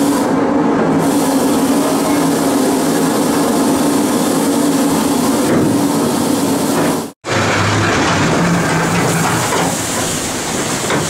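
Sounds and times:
water rushing through flume: 0:08.0 - 0:11.0.

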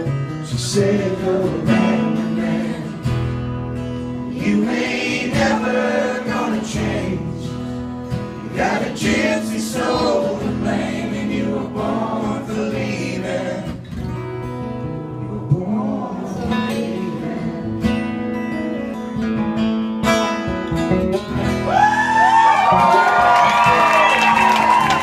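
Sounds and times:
acoustic guitars strumming: 0:00.0 - 0:25.0
voices whooping calls: 0:21.6 - 0:25.0.

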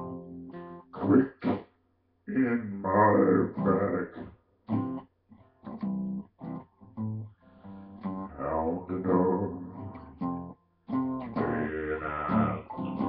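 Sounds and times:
acoustic guitar picking: 0:05.7 - 0:13.0.

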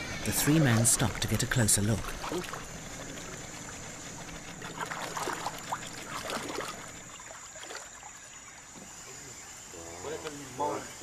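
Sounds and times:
steady high whine: 0:00.0 - 0:07.4
water lapping around boat: 0:00.0 - 0:10.8.

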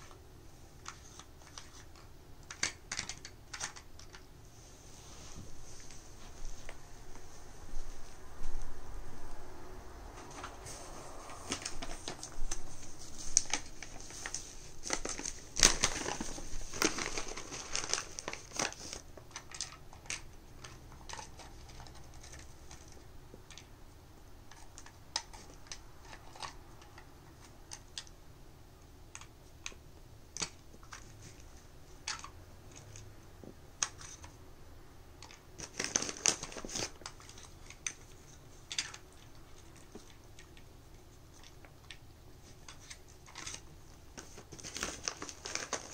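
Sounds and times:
plastic puzzle feeder clicking: 0:00.8 - 0:04.2.

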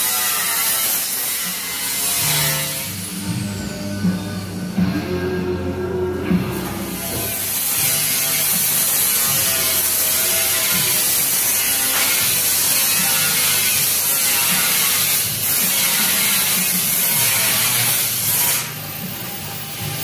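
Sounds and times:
lathe cutting hiss: 0:06.6 - 0:20.0.

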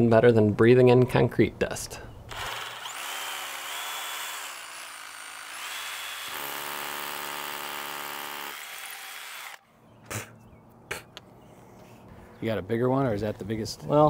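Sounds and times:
rotary hammer drilling into concrete: 0:02.3 - 0:09.6.

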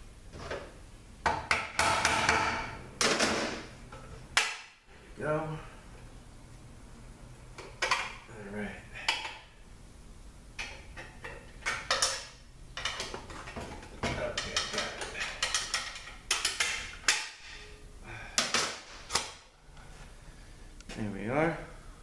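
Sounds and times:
metal tools clinking and scraping: 0:11.0 - 0:17.8.

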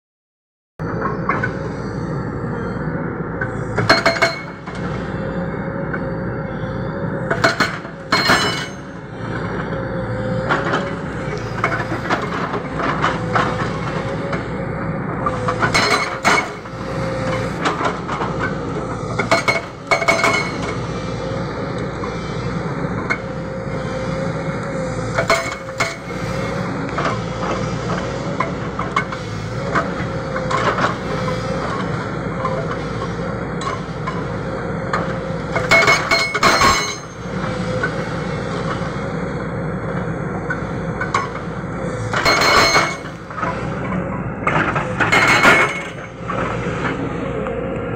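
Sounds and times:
excavator engine running: 0:00.8 - 0:47.9
hydraulic rock breaker hammering: 0:35.0 - 0:38.0, 0:42.1 - 0:43.6.

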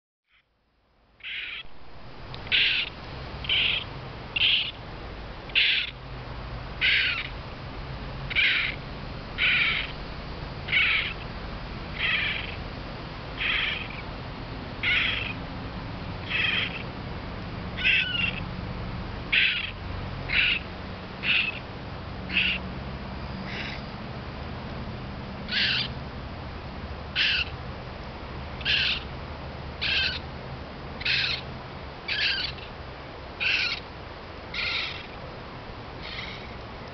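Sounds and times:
raccoon kit crying: 0:17.8 - 0:18.4.

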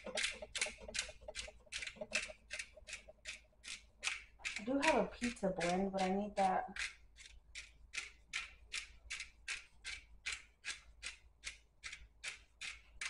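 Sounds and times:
pepper grinder crunching: 0:00.0 - 0:10.4.

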